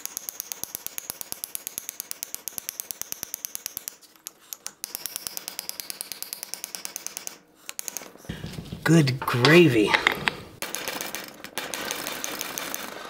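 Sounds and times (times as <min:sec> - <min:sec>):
hammer tapping on wooden dowel: 0:00.0 - 0:10.2.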